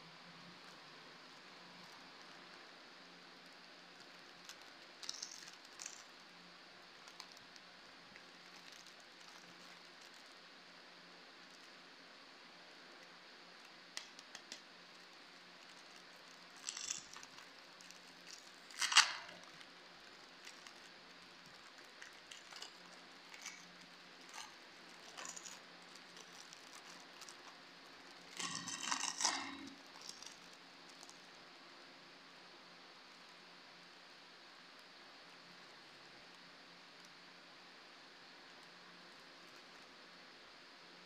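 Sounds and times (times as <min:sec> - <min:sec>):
plastic wrapper crinkling: 0:03.8 - 0:10.5, 0:13.6 - 0:31.2.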